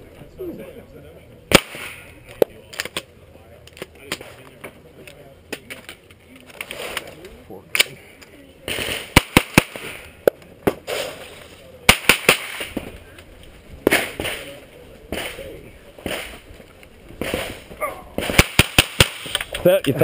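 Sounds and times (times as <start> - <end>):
rifle shots: 1.5 - 2.1, 8.7 - 10.1, 11.8 - 12.8, 17.2 - 19.5.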